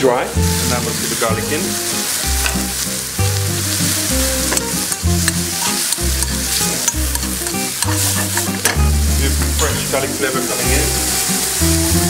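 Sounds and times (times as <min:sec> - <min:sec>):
background music with bass line: 0:00.0 - 0:12.0
mushrooms and garlic sizzling: 0:00.0 - 0:12.0
metal spatula scraping a pan: 0:04.4 - 0:08.8.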